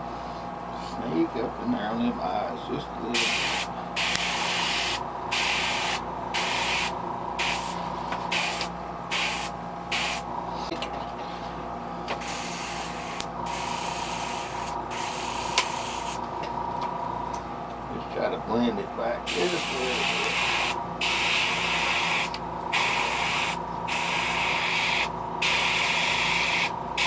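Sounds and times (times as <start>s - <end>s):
airbrush spraying hissing air: 3.2s - 10.3s, 12.2s - 16.2s, 19.3s - 26.7s.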